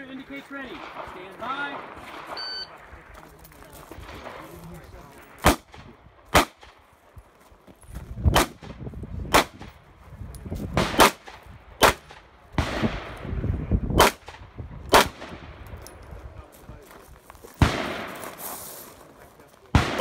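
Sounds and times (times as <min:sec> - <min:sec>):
pistol gunshots: 0:00.6 - 0:02.5, 0:05.4 - 0:06.8, 0:08.3 - 0:09.7, 0:10.8 - 0:13.2, 0:14.0 - 0:15.6, 0:17.6 - 0:18.3, 0:19.7 - 0:20.0.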